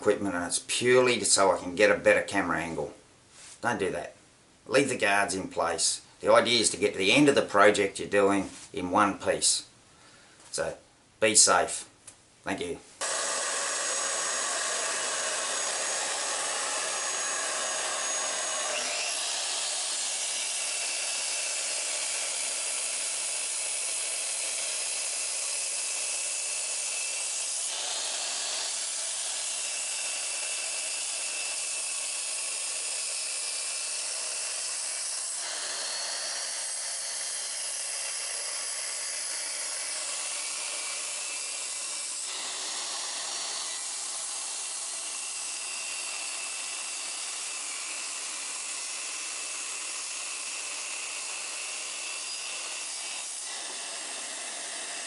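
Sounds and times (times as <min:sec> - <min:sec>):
mitre saw cutting wood: 0:13.0 - 0:55.0.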